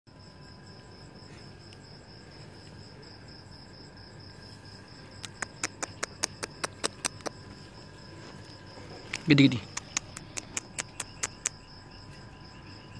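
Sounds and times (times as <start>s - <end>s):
cricket chirring: 0.1s - 12.9s
sharp clicks: 5.2s - 7.4s, 9.1s - 11.6s.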